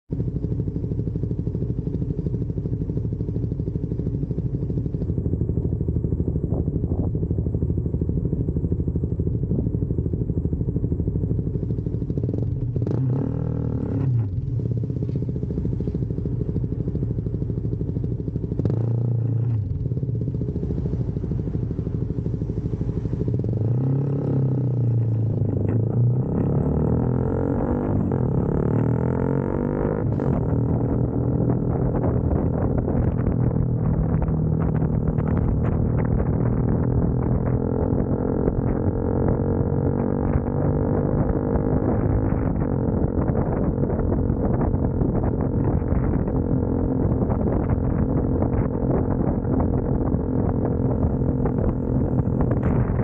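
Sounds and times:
motorcycle engine idling and revving: 0.0s - 53.0s.

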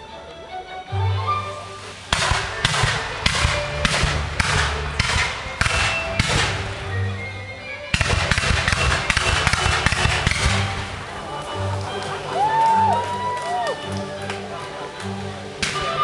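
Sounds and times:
music: 0.0s - 16.0s
fireworks bangs: 2.1s - 7.0s, 8.0s - 11.2s.

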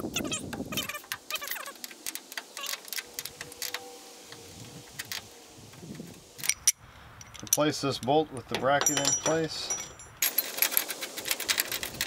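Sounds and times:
light metallic clicks and rattles: 6.4s - 12.0s.

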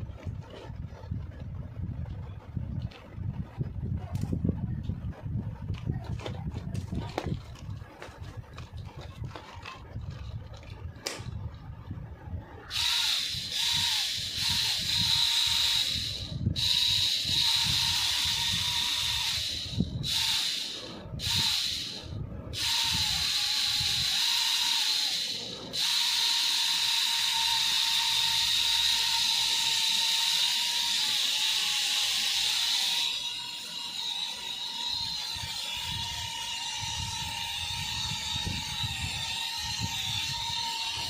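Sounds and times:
toy quadcopter motors whining: 12.7s - 41.0s.

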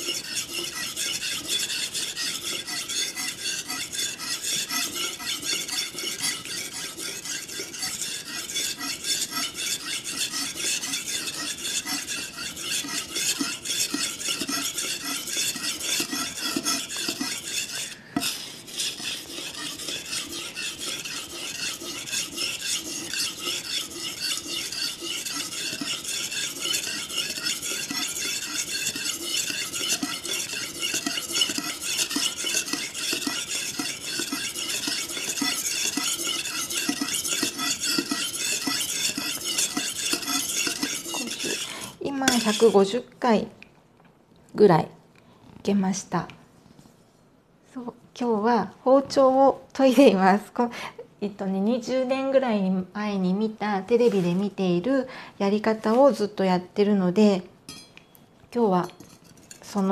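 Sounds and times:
knife scraping on whetstone: 0.0s - 42.9s, 58.9s - 59.8s.

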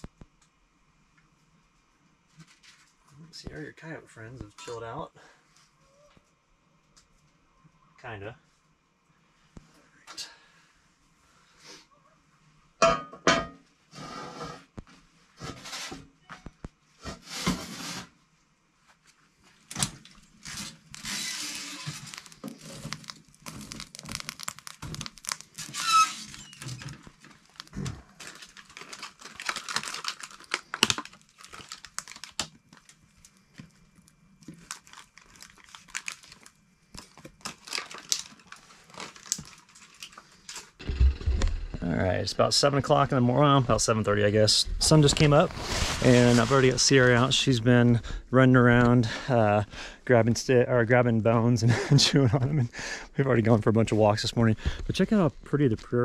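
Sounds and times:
rustling and crinkling: 2.2s - 3.3s, 18.8s - 41.9s, 42.5s - 49.0s.

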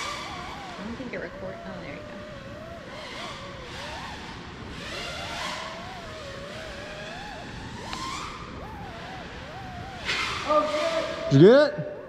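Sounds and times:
drone motors whining: 0.0s - 11.5s.

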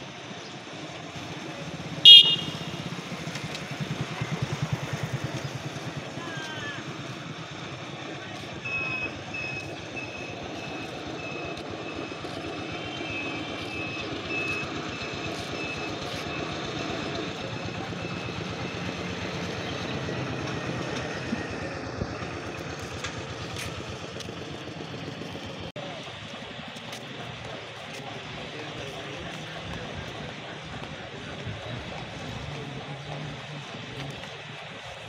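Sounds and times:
engine running: 0.0s - 35.0s
short high beeps: 2.1s - 2.8s.

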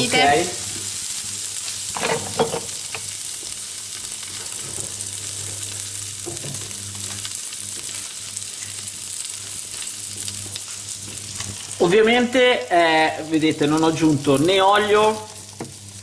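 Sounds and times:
meat sizzling in a frying pan: 0.0s - 16.0s.

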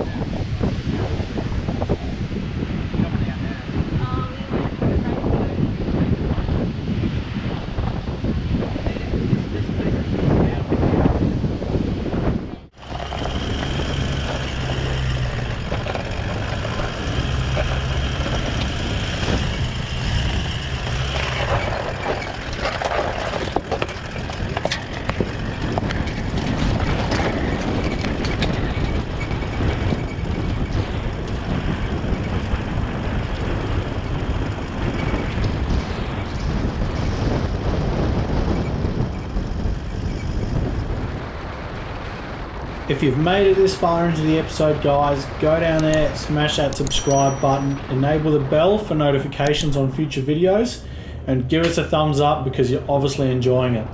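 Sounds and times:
vehicle engine drone and road noise: 0.0s - 53.9s
knocks and rattles: 12.8s - 32.5s.

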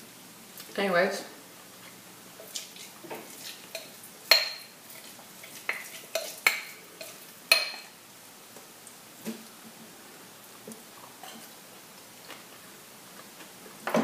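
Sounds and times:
spoon stirring thick pudding: 2.4s - 7.9s.

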